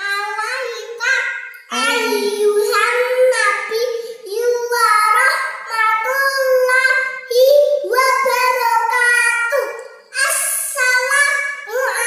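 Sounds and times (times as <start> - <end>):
girl chanting in sing-song melody: 1.7 - 2.8.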